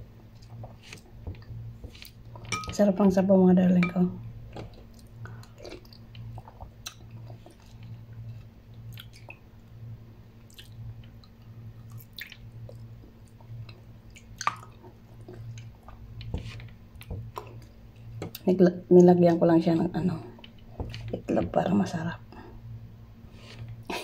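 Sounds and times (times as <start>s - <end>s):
steady low hum: 0.0s - 24.0s
person chewing noodle soup: 4.5s - 9.5s, 10.4s - 16.3s
wet mouth clicks: 10.5s - 10.8s.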